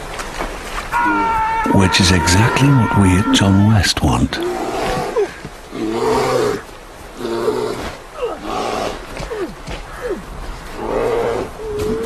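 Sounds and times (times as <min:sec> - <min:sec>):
bear growling and roaring: 0:01.0 - 0:03.8, 0:04.4 - 0:09.6, 0:10.8 - 0:12.0
man crying out: 0:01.0 - 0:03.8.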